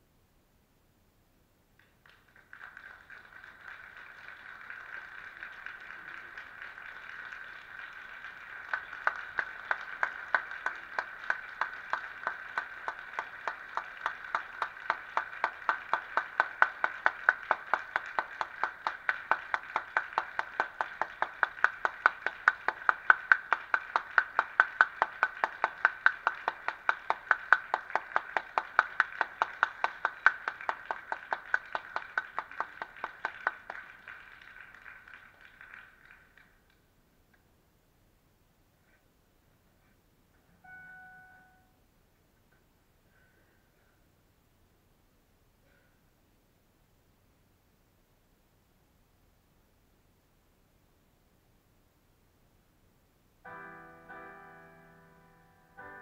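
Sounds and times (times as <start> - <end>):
faint ringing tone: 40.5 - 41.9.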